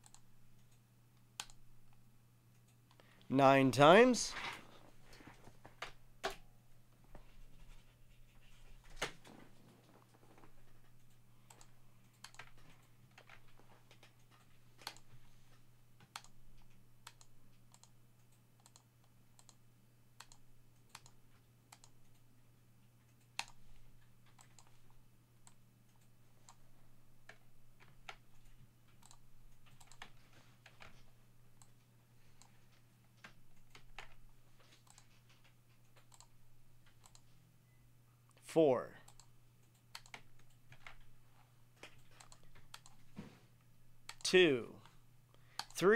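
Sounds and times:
low electrical hum: 0.0s - 45.9s
mouse and keyboard clicks: 28.0s - 31.0s, 33.2s - 36.3s, 39.1s - 41.1s, 41.8s - 43.0s.

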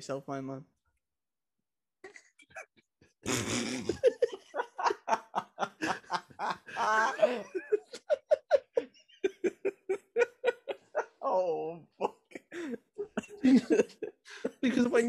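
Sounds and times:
breathy laughter: 2.5s - 11.4s, 12.0s - 14.6s.

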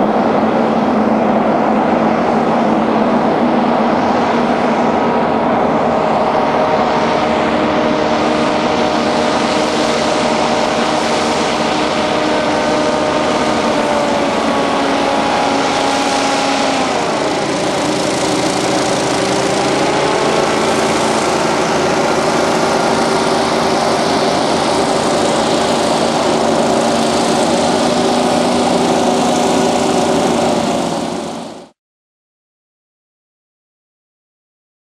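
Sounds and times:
hovercraft engine drone: 0.0s - 31.8s.

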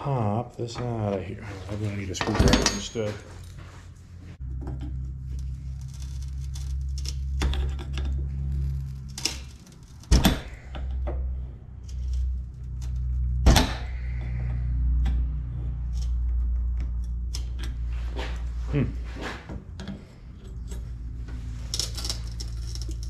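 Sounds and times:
screwdriver scraping metal: 19.8s - 23.0s.

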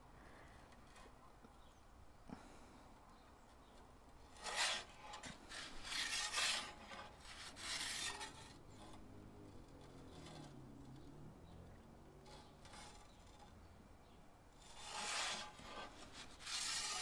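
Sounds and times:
metal peel scraping on stone: 3.7s - 11.1s, 12.0s - 17.0s.

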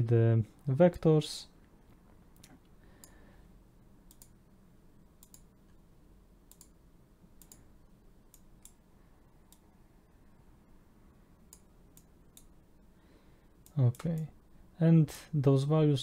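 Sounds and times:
low room hum: 0.0s - 16.0s
computer mouse clicking: 4.1s - 4.4s, 5.2s - 5.8s, 6.5s - 6.8s, 7.4s - 7.7s, 8.3s - 8.8s, 9.5s - 9.7s, 11.5s - 12.5s.

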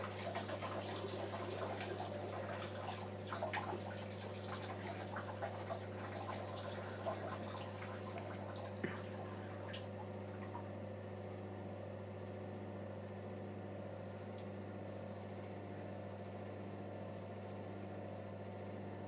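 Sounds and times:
urine trickling into toilet: 0.0s - 10.7s.

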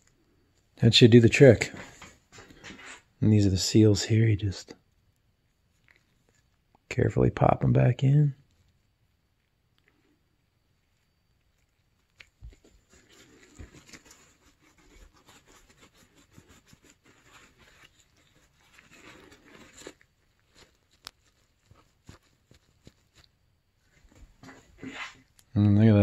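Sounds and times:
paper towel crinkling: 12.4s - 25.3s.

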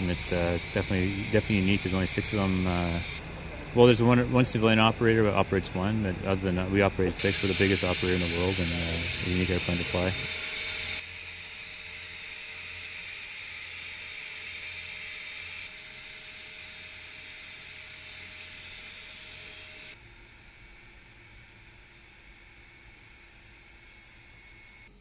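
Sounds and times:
high engine whine: 0.0s - 25.0s
turboprop engines running: 0.0s - 25.0s.

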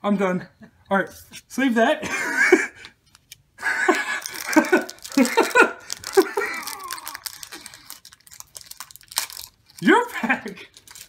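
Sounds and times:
sharp clicks and crinkles of handling: 2.8s - 3.5s, 4.2s - 9.9s, 10.7s - 11.0s
person muttering: 6.1s - 7.6s.

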